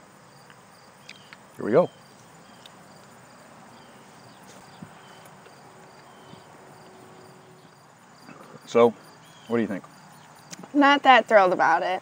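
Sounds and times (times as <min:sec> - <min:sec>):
high insect chirps: 0:00.0 - 0:12.0
people chewing crunchy cookies: 0:08.2 - 0:08.8.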